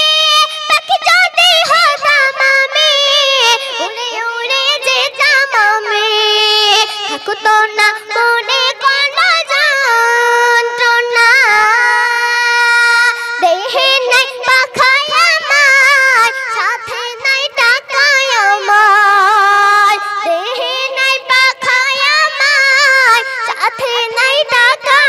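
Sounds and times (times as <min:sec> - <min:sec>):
boy singing unaccompanied: 0:00.0 - 0:25.0.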